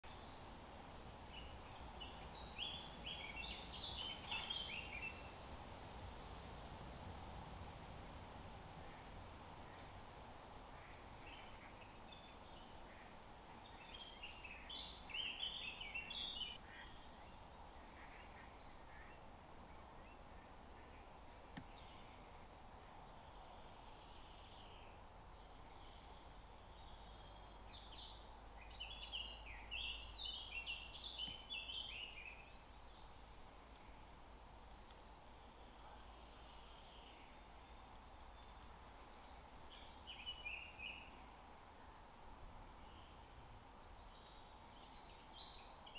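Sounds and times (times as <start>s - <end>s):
faint outdoor hiss: 0.0s - 45.9s
songbird twittering: 1.3s - 5.3s, 10.8s - 19.2s, 23.2s - 34.0s.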